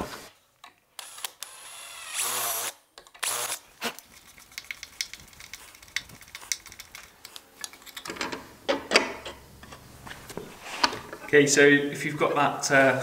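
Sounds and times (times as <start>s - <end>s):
cordless drill running: 1.0s - 3.6s.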